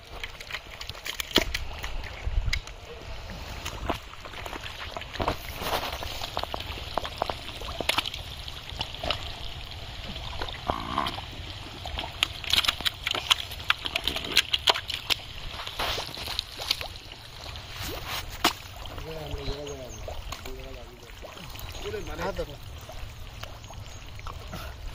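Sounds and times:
fish flapping in water: 0.0 - 2.3, 3.6 - 9.5, 10.2 - 19.0
mud squelching and sloshing: 0.0 - 24.9
sharp wet slaps: 0.2 - 2.0, 12.1 - 15.3, 18.2 - 18.8.

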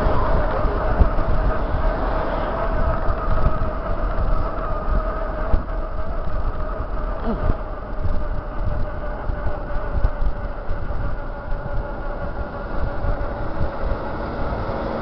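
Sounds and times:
steady hum: 0.0 - 15.0
tyre noise on asphalt: 0.0 - 15.0
wind buffeting microphone: 0.0 - 15.0.

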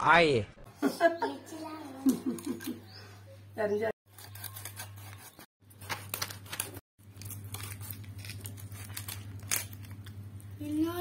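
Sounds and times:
knife scraping fish scales: 4.1 - 6.7.

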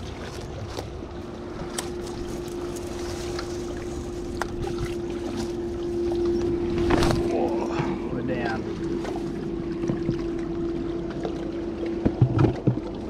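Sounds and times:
wind on microphone: 0.0 - 10.2
steady motor drone: 0.0 - 13.0
footsteps through grass and rocks: 1.8 - 5.6.

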